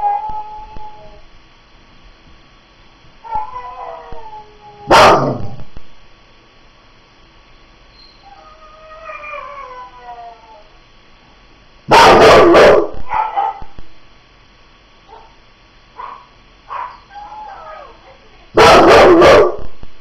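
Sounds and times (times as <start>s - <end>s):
dog howling: 3.2s - 5.4s, 8.2s - 10.7s, 16.7s - 19.5s
dog yipping: 13.1s - 13.6s, 16.0s - 18.0s.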